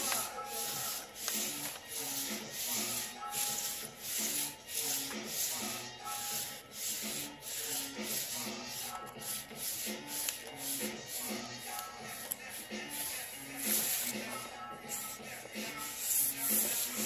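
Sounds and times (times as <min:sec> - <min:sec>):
hands rubbing plastic overlay: 0:00.0 - 0:05.7
faint music: 0:00.0 - 0:17.0.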